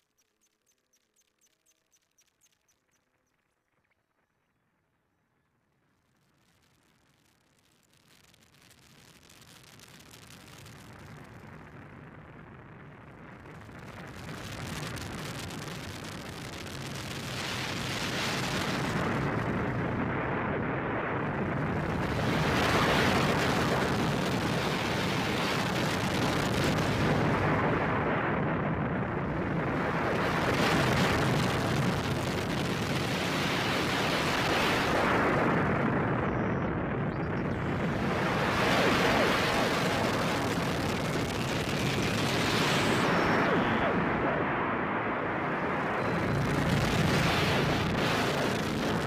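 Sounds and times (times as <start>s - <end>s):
distorted synthesizer noise drone: 45.8s - 49.0s.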